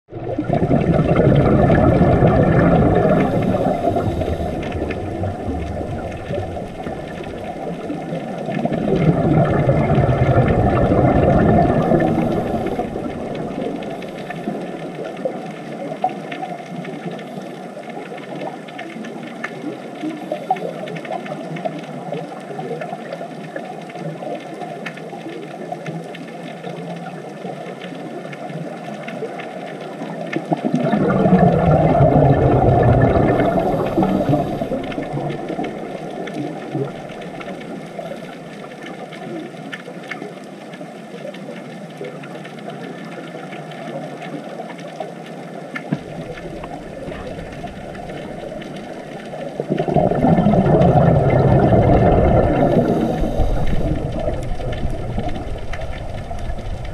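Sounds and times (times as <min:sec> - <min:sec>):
bubbling bursts: 0:00.1 - 0:15.7, 0:30.4 - 0:38.7, 0:45.8 - 0:56.9
muffled underwater hiss: 0:00.1 - 0:56.9.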